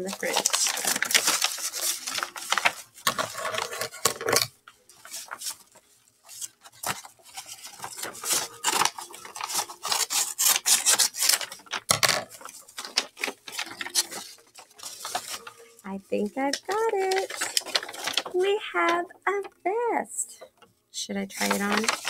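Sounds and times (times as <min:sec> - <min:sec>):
paper rustling: 0:00.0 - 0:19.0, 0:21.3 - 0:22.0
scissors cutting paper: 0:06.4 - 0:11.8, 0:21.4 - 0:22.0.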